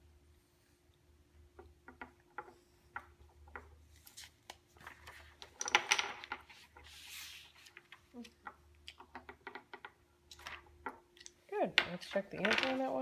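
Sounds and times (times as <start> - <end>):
wooden blocks clicking and knocking: 1.4 - 3.8, 4.8 - 6.9, 7.7 - 13.0.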